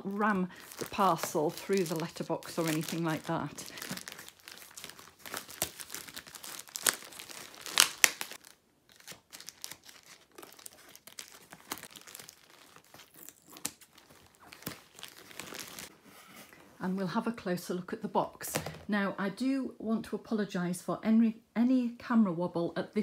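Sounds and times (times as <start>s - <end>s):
plastic bag crinkling: 0.0s - 15.9s.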